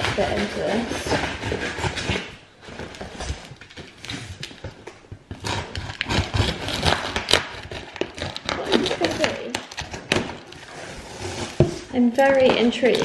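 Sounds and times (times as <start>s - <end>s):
knife rasping through tape: 0.0s - 2.4s, 5.3s - 13.0s
knife scraping cardboard: 0.0s - 4.5s, 5.3s - 13.0s.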